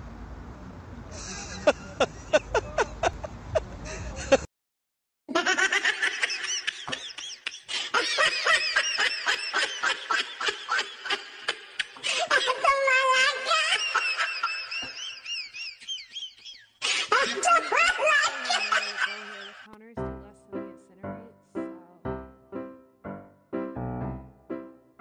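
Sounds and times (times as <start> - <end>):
rapid high-pitched laughter: 1.2 - 4.5, 5.3 - 19.7.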